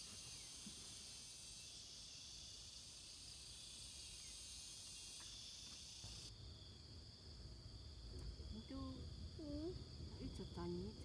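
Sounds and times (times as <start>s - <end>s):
insects shrilling: 0.0s - 6.7s.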